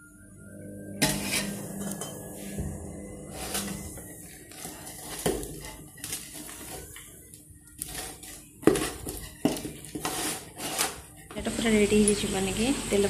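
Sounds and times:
spoon scraping steel bowl: 1.0 - 2.6, 3.2 - 7.0, 7.8 - 11.1.

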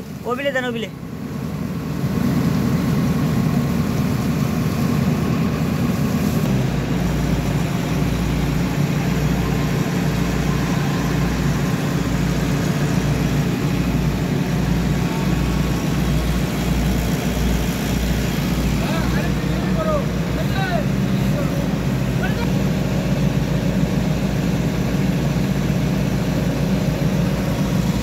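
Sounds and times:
diesel engine running: 0.0 - 28.0
low regular throb: 1.0 - 28.0.

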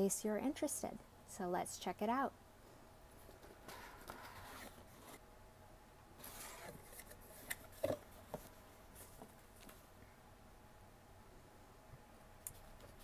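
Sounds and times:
cardboard rustling and scraping: 3.2 - 5.2, 6.2 - 9.8.

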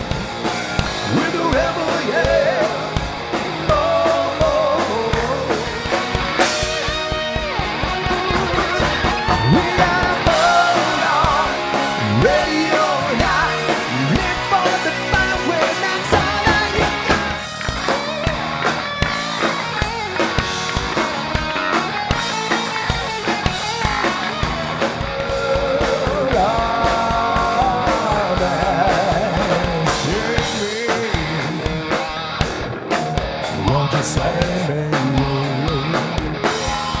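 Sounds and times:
drum kit beat: 0.0 - 37.0
electric guitar: 0.0 - 37.0
person singing: 0.9 - 5.8, 8.4 - 17.4, 25.0 - 31.8, 33.5 - 36.2.

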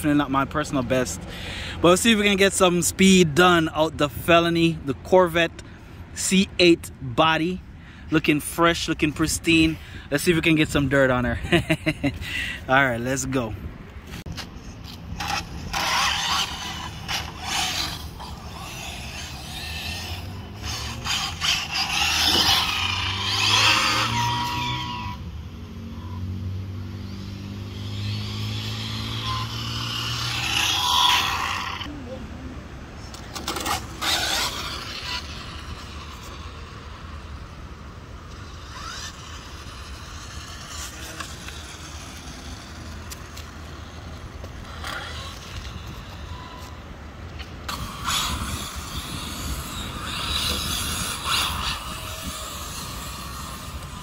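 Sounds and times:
rc car electric motor whine: 14.3 - 31.9, 33.1 - 54.0.

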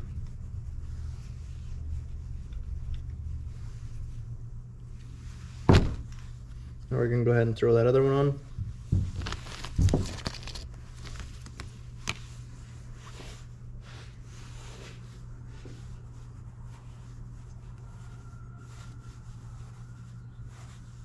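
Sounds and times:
steady low hum: 0.0 - 21.0
plastic bag crinkling: 9.1 - 12.2.

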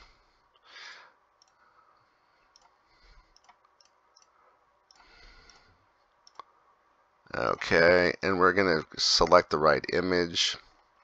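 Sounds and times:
computer mouse clicks: 1.4 - 1.6, 2.4 - 6.5.

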